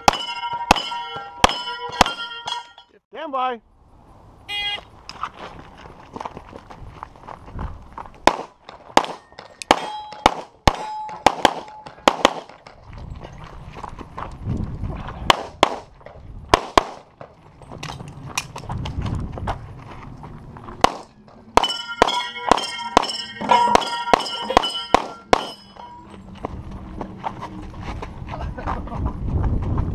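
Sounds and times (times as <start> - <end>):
steel targets ringing: 0.0 - 3.0, 9.0 - 12.1, 21.0 - 26.3
pistol shots: 8.2 - 12.7, 15.3 - 15.9, 16.5 - 17.1, 20.8 - 25.7.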